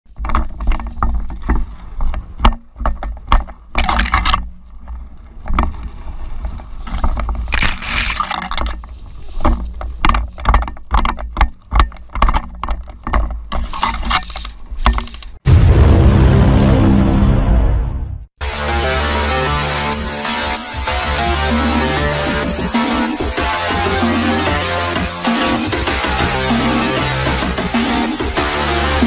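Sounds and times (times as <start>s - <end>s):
footsteps and gear clatter: 0.1s - 15.4s.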